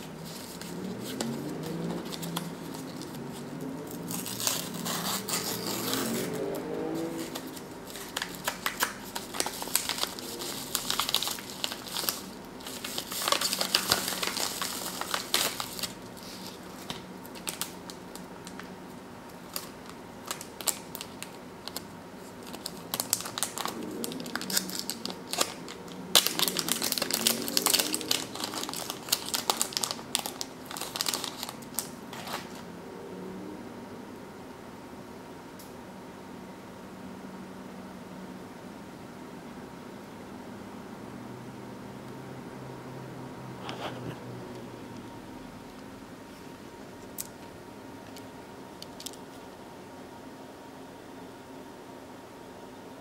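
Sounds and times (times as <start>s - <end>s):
packaging crinkling and rustling: 0.0s - 18.7s, 19.3s - 32.6s.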